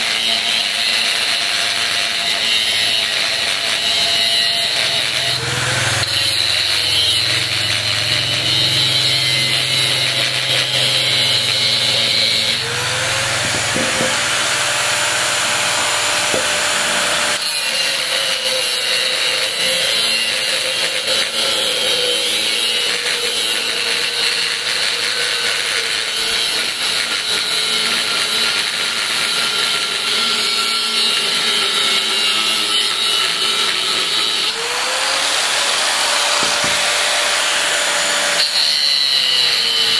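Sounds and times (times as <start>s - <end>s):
angle grinder cutting steel: 0.0s - 39.9s.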